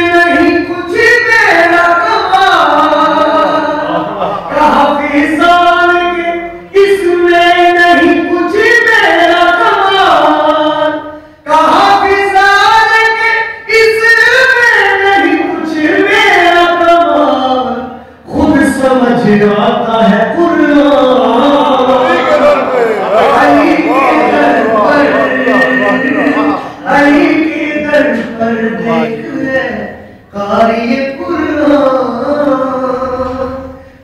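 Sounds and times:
man singing unaccompanied: 0:11.5 - 0:33.7.

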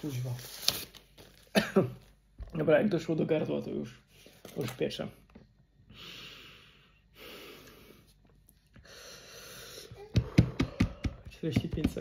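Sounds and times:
man breathing hard through mouth: 0:05.9 - 0:08.1, 0:08.8 - 0:11.2.

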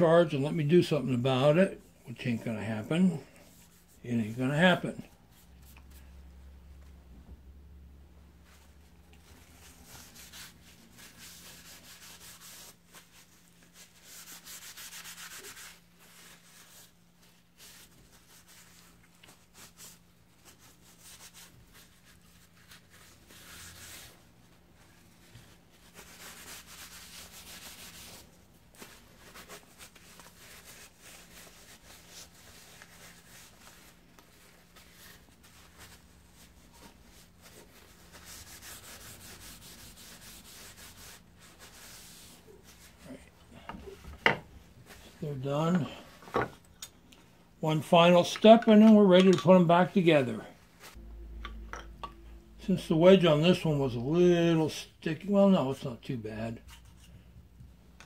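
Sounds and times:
paper towel rubbing wood: 0:09.2 - 0:44.0.

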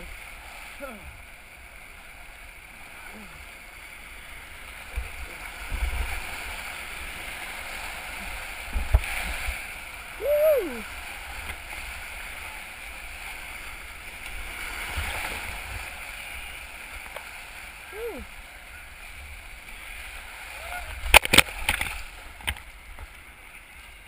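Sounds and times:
whitewater rapids rushing: 0:04.2 - 0:22.2
person shouting: 0:10.2 - 0:10.9, 0:17.9 - 0:18.3, 0:20.5 - 0:21.0.

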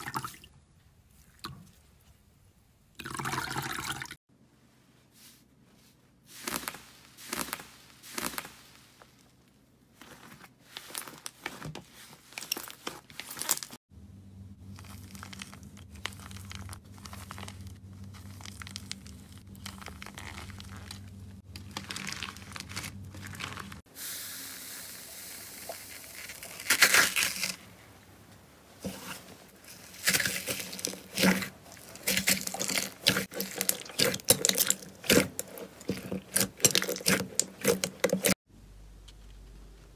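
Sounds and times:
steady low hum: 0:13.9 - 0:23.8.

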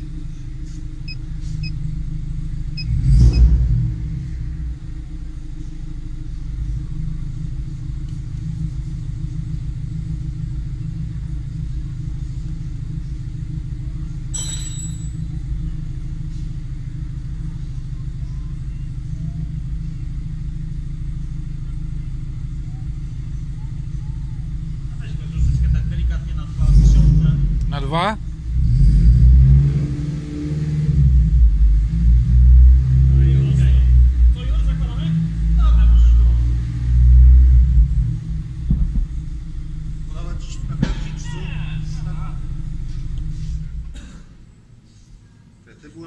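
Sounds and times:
car engine fast idle: 0:00.0 - 0:14.4, 0:15.1 - 0:29.0, 0:37.5 - 0:45.6.

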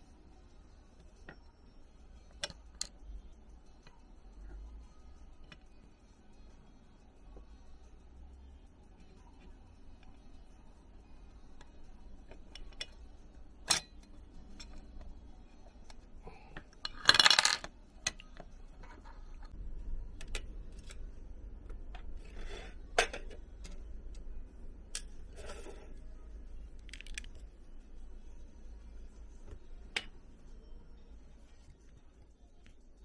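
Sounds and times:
metal part clattering in tray: 0:16.8 - 0:17.7
small parts clicking: 0:26.8 - 0:27.5.

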